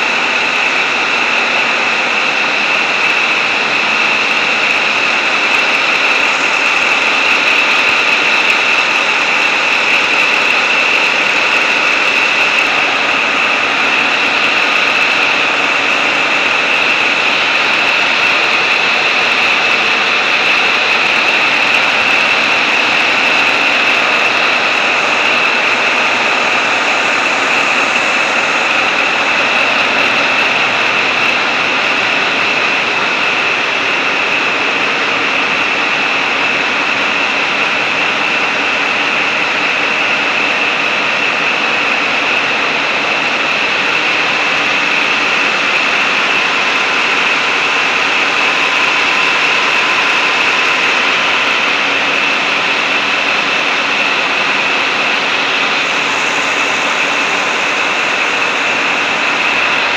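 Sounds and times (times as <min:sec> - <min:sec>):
diesel engine running: 0:00.0 - 0:59.9.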